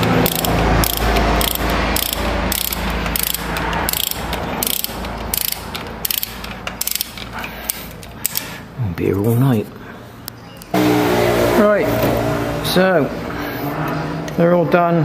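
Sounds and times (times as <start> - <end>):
ratchet wrench clicking: 0.0 - 8.6.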